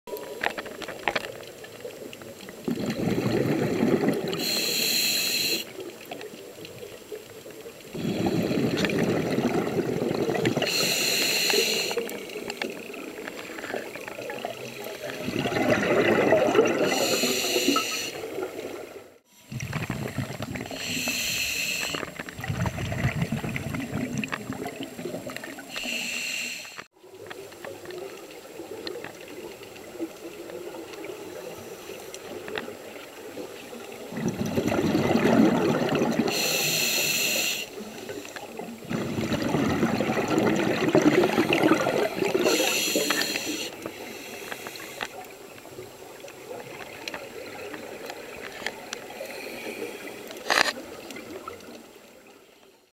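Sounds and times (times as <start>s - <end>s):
rumble of exhaled bubbles: 1.6s - 4.4s, 5.9s - 10.8s, 12.1s - 17.2s, 18.3s - 20.8s, 22.0s - 25.7s, 32.3s - 36.4s, 38.5s - 42.8s
regulator breath hiss: 4.3s - 5.8s, 10.6s - 12.1s, 16.8s - 18.3s, 20.7s - 22.2s, 25.6s - 26.9s, 36.3s - 38.6s, 41.6s - 45.3s, 49.2s - 50.7s.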